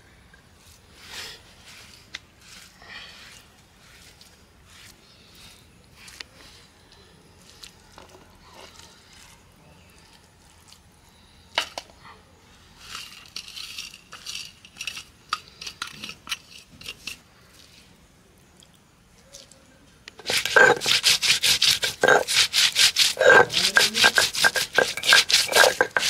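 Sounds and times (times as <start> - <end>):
seeds rattling onto stone: 12.9 - 17.2, 20.2 - 26.0
steel plate clinking on stone: 20.2 - 26.0.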